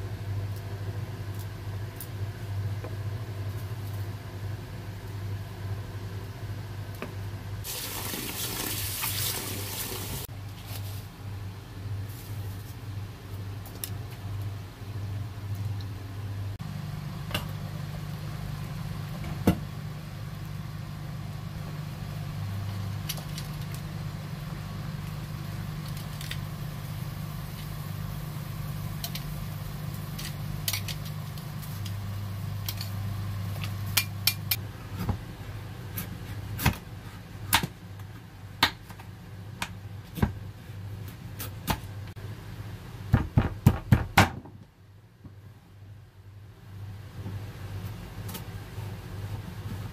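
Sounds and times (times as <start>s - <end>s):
steady low hum: 10.2s - 43.5s.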